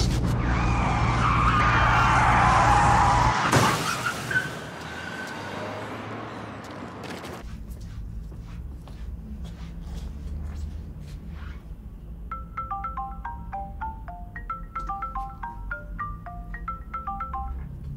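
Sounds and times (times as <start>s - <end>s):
car tyres screeching: 0.0s - 7.5s
car crash impact: 3.2s - 4.8s.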